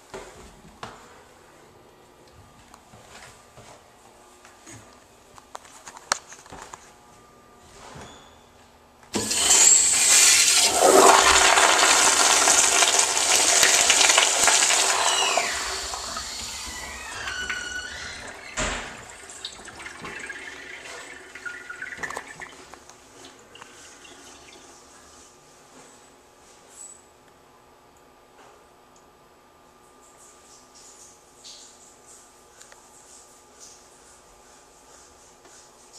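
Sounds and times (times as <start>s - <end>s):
toilet flushing rush of water: 9.2s - 24.9s
water running as bowl refills: 9.2s - 25.3s
gurgling drain with whistles: 9.3s - 24.9s.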